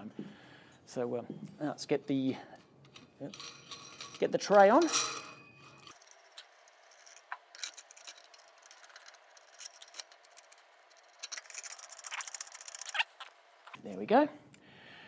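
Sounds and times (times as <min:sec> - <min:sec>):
metallic clicks and rattles: 0:02.8 - 0:13.3.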